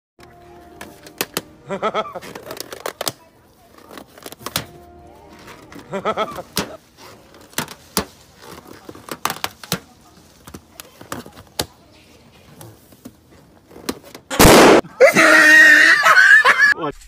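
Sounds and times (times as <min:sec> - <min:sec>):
rubber balloon squeaking: 0:01.7 - 0:03.1
balloon bursting: 0:14.3 - 0:14.8.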